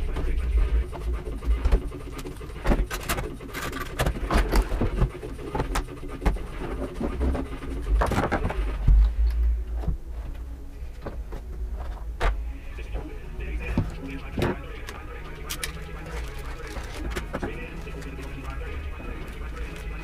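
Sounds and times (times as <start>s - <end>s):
tools clicking and rattling: 2.2s - 5.9s.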